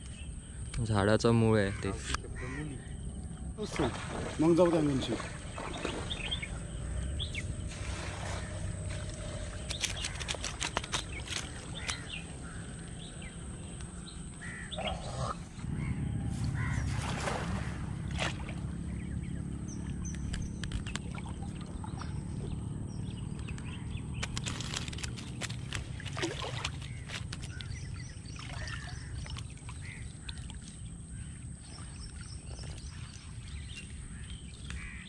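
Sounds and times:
shallow water sloshing: 0:02.0 - 0:35.0
sharp clicks: 0:23.3 - 0:25.9.

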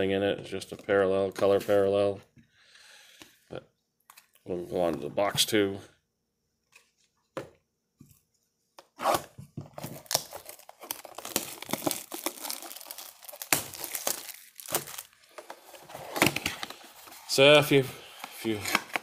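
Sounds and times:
plastic wrap tearing and crinkling: 0:09.8 - 0:17.4.

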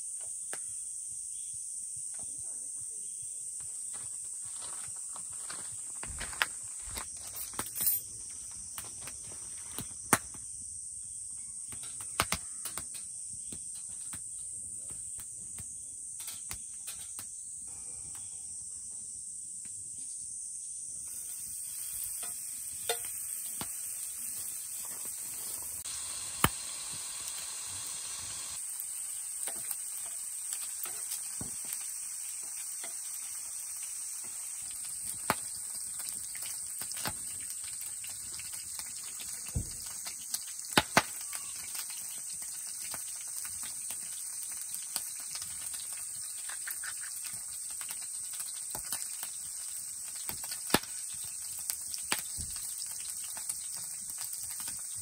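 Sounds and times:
meat sizzling in a frying pan: 0:21.0 - 0:55.0
utensils knocking on a pan: 0:22.2 - 0:23.2.

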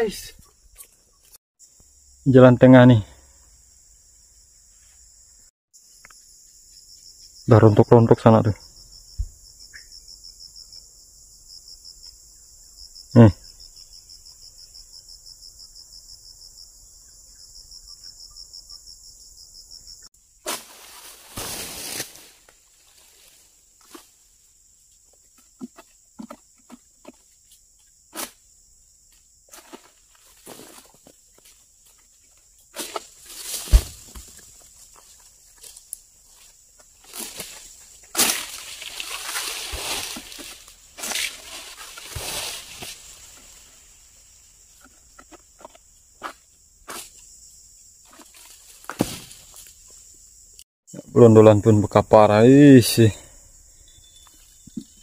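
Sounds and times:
high insect drone: 0:01.6 - 0:55.0
sickle knocking against fronds: 0:20.4 - 0:24.2, 0:32.8 - 0:34.5, 0:36.8 - 0:43.6, 0:48.1 - 0:49.7
leafy rustling and scraping: 0:20.4 - 0:24.5, 0:29.5 - 0:32.0, 0:32.7 - 0:44.1.

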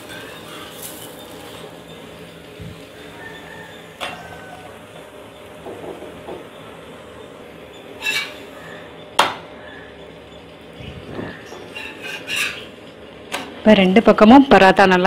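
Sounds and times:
bread sizzling in oil: 0:00.0 - 0:09.8, 0:11.0 - 0:13.0.

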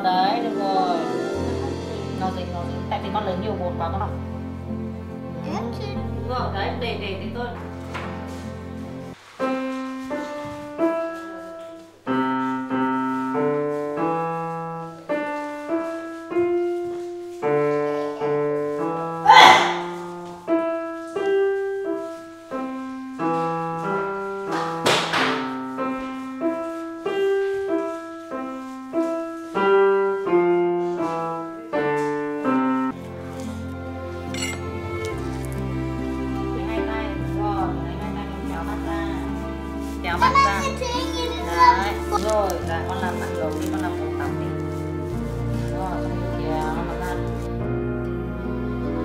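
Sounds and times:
child playing piano melody: 0:05.0 - 0:35.6, 0:39.8 - 0:45.7.

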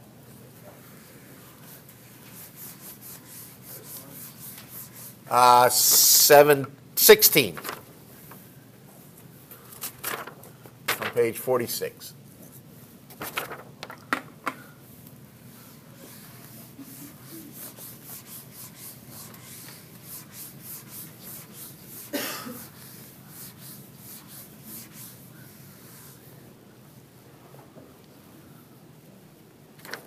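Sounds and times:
eraser rubbing whiteboard: 0:01.6 - 0:06.2, 0:16.0 - 0:26.3.

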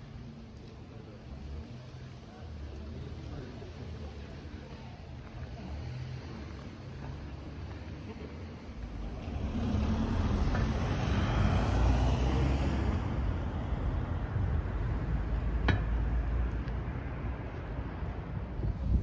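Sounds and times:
steady low traffic rumble: 0:00.0 - 0:19.0
vehicle passing: 0:05.6 - 0:17.9.

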